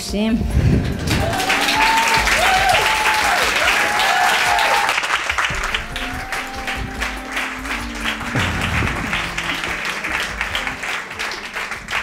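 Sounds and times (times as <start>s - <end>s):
audience applauding: 0.7s - 12.0s
music melody: 5.1s - 12.0s.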